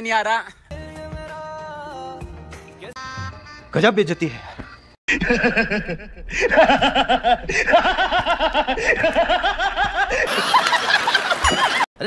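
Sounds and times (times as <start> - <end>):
man laughing loudly: 5.1 - 11.8.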